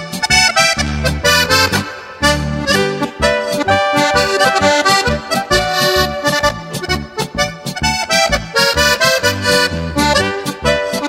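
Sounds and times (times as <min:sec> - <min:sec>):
lively instrumental music: 0:00.0 - 0:11.0.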